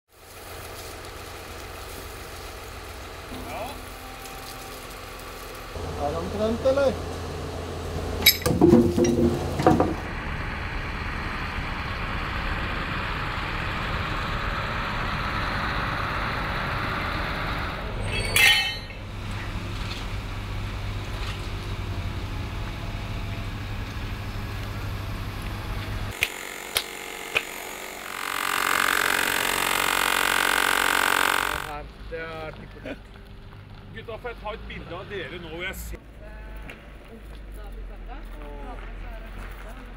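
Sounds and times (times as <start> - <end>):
truck engine running: 0.2 - 35.9
machine whirring: 26.1 - 31.7.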